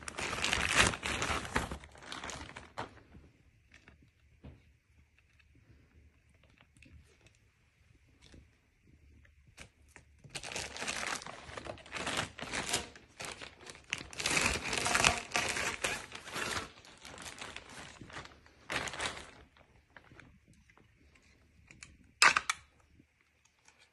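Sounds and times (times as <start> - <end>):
plastic bag crinkling: 0.0 - 4.0, 9.9 - 22.8.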